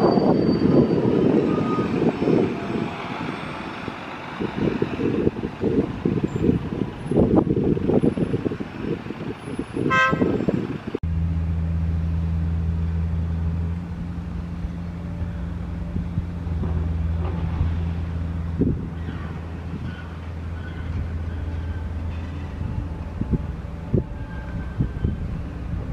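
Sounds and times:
wind on microphone: 0.0 - 11.0, 15.8 - 25.9
bus driving: 0.0 - 25.9
diesel engines idling: 0.1 - 25.9
vehicle horn toot: 9.8 - 10.5.

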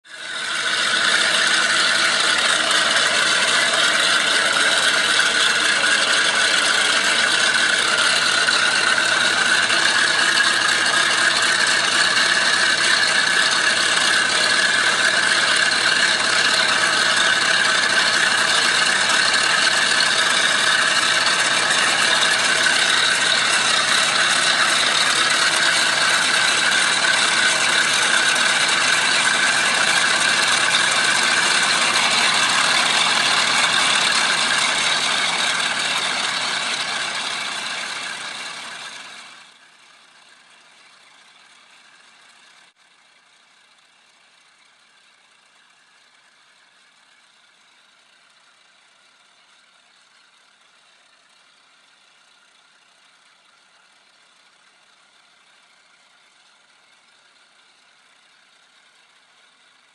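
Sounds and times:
aircraft propeller engines running: 0.5 - 39.2.

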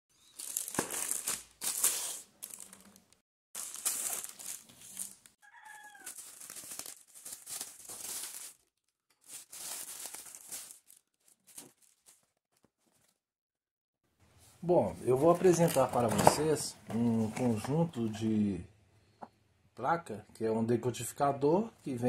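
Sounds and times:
plastic bag crinkling: 0.2 - 13.1.

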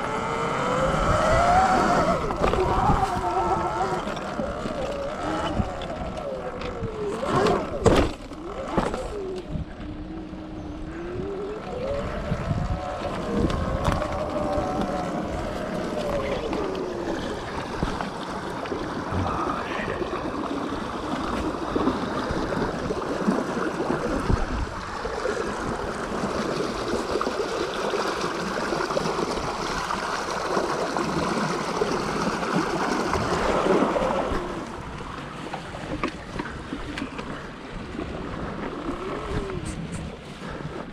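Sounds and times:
wind noise on microphone: 0.0 - 18.2, 19.0 - 27.4, 35.8 - 40.9
electric motor whine: 0.0 - 20.0.

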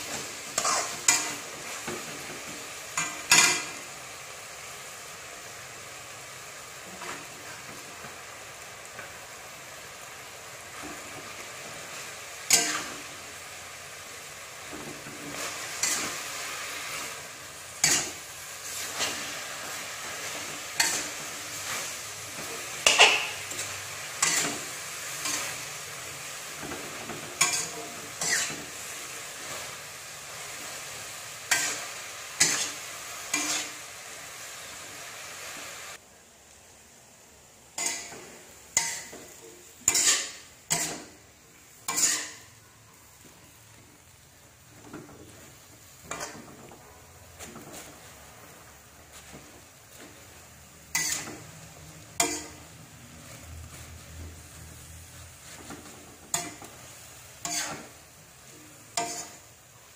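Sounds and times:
metal spatula scraping wok: 0.0 - 3.9, 10.6 - 13.3, 14.6 - 34.0, 37.8 - 41.2, 41.8 - 42.6, 44.7 - 59.6
food sizzling: 0.0 - 59.9.

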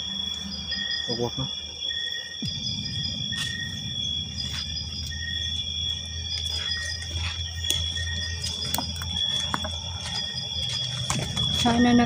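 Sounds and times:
crickets and insects trilling: 0.0 - 12.0
low rumble: 2.4 - 12.0.

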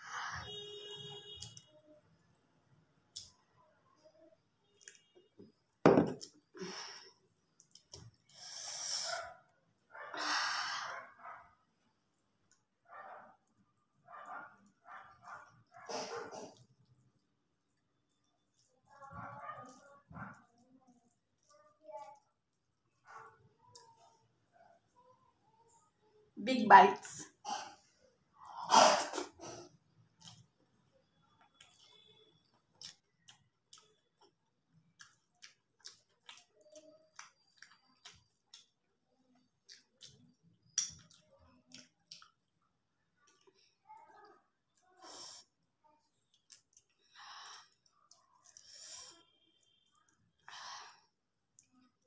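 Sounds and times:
chewing and lip-smacking: 7.4 - 8.4, 16.5 - 23.0, 30.0 - 43.8, 46.1 - 48.9, 49.6 - 50.5, 51.4 - 52.0.

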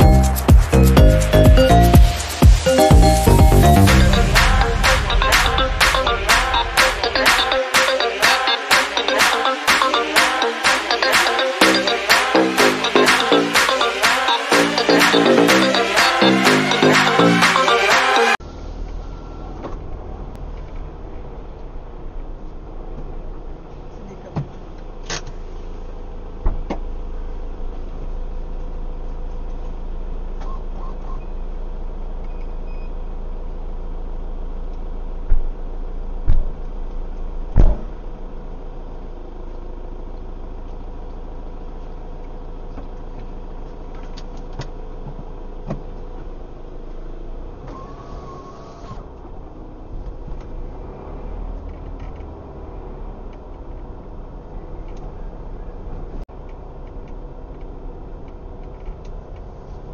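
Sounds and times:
car engine idling: 0.0 - 30.3.

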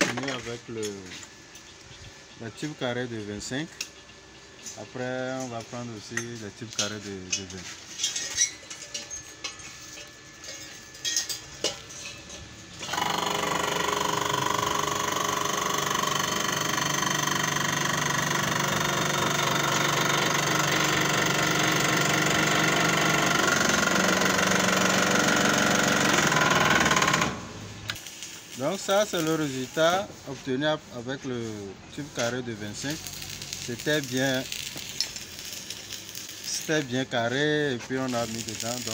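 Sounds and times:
hydraulic press motor running: 12.8 - 28.0.

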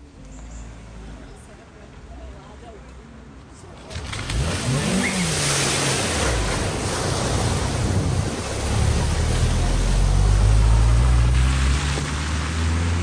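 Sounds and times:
water rushing and splashing: 3.8 - 13.0.

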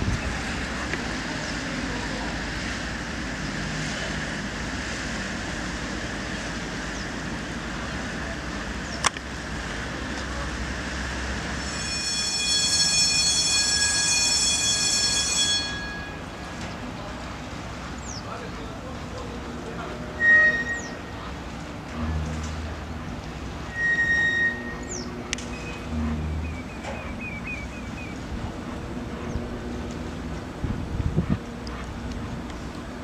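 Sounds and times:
machinery low rumble: 0.0 - 33.0
high-pitched metallic squeal: 11.4 - 16.6, 19.9 - 21.4, 23.6 - 28.0.

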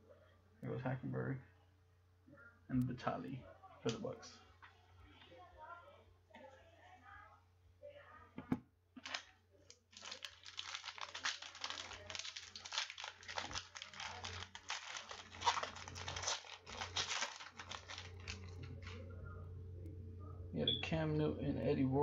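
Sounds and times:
foil wrapper crinkling: 9.0 - 19.2.

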